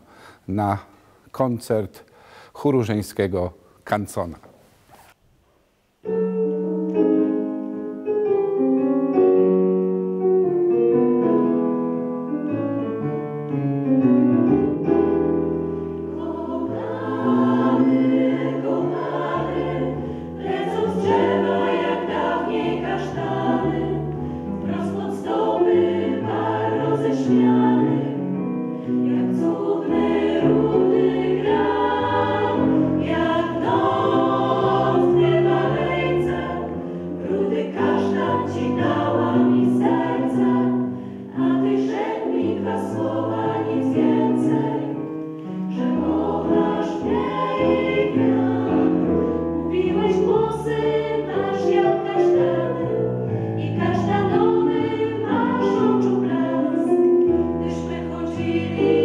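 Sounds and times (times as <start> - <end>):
piano accompaniment: 6.0 - 59.0
women's choir singing: 15.2 - 59.0.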